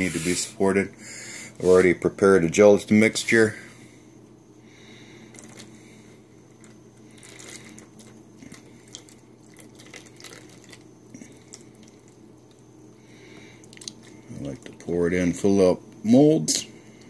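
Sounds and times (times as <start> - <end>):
liquid trickling and dripping: 6.6 - 12.6, 13.6 - 14.9.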